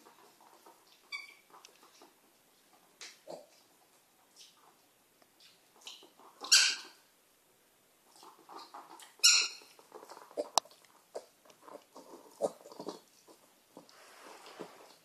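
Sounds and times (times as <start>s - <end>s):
piglet grunts and snuffles: 2.8s - 4.8s, 8.1s - 13.9s
piglet squealing: 6.4s - 7.0s, 9.0s - 9.8s.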